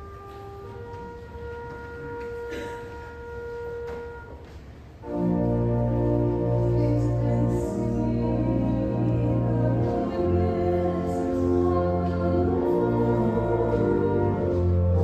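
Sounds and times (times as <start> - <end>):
church organ chords: 5.0 - 15.0.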